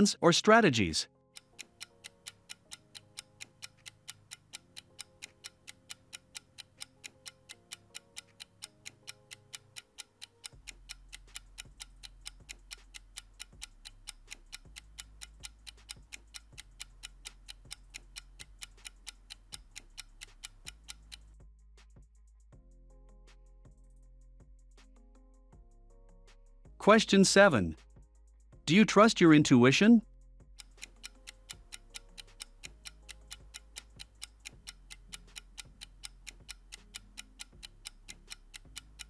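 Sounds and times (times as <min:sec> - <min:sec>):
soft background music: 0:00.2 - 0:39.0
clock-like ticking: 0:01.4 - 0:21.4, 0:30.6 - 0:39.0.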